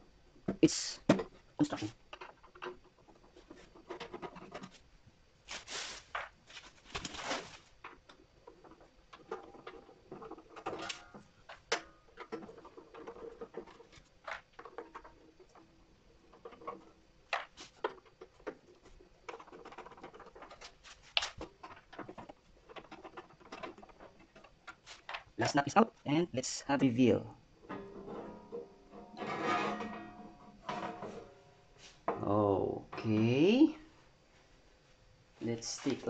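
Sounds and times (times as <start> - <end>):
clicks scrapes and rattles: 1.4 - 4.8, 5.5 - 25.4.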